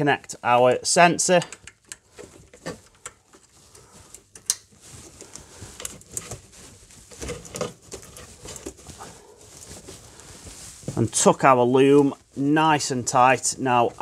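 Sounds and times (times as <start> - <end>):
plastic wiring loom rustling: 1.2 - 12.2.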